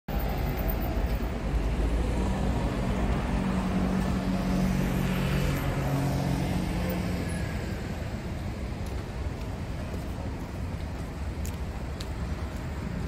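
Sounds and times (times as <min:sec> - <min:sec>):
car engines rumbling: 0:00.1 - 0:13.0
motor scooter passing: 0:02.2 - 0:08.0.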